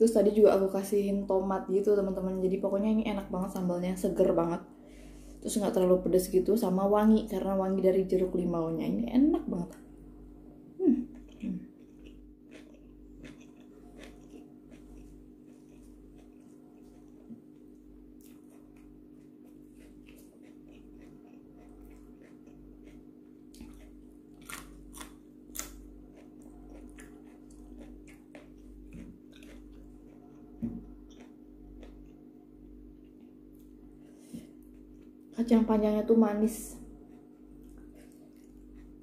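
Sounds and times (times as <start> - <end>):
steady low hum: 0.0 - 39.0
person chewing crunchy vegetables: 11.0 - 35.3, 36.8 - 39.0.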